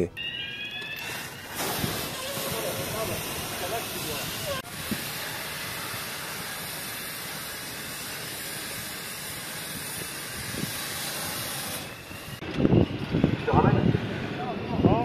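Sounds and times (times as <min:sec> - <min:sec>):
hose nozzle spraying water: 0:01.0 - 0:12.4.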